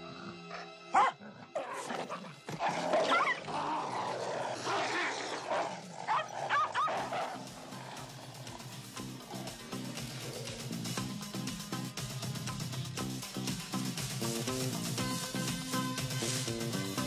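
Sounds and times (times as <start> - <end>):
animals snarling and growling: 0.0 - 11.4
sharp high yelps: 6.1 - 7.1.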